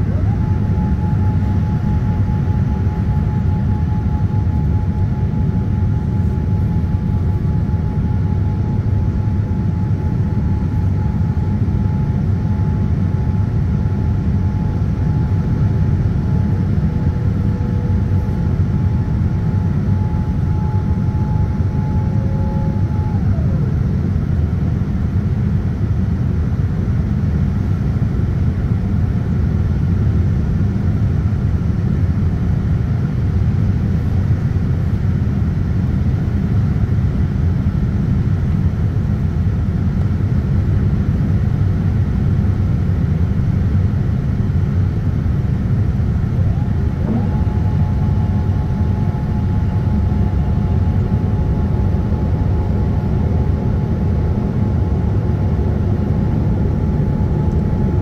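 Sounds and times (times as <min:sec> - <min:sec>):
rising whine: 0:00.0 - 0:25.4, 0:45.4 - 0:58.0
airliner cabin low rumble: 0:00.0 - 0:58.0.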